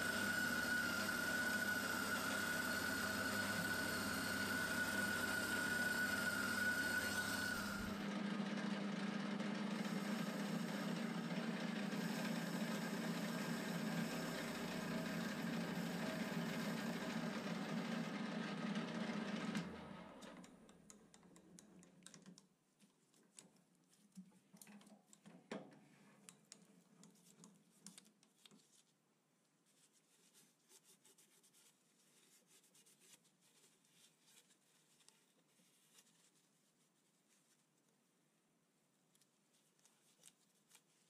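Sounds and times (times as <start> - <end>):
metal lathe running: 0.0 - 8.4, 9.4 - 19.1
cloth scratching metal threads: 29.6 - 37.8, 39.1 - 41.0.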